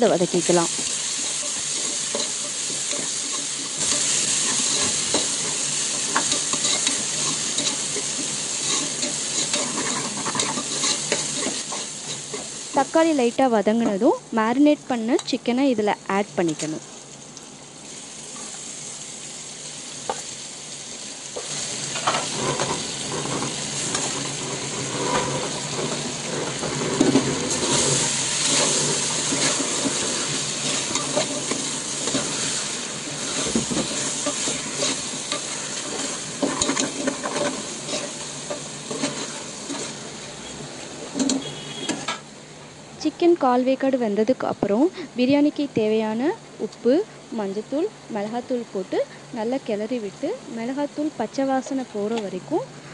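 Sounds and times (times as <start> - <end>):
chicken sizzling in hot oil: 0.0 - 13.6, 16.3 - 42.5
metal ladle scraping and clinking pot: 1.2 - 12.5, 22.0 - 40.0, 41.1 - 42.2.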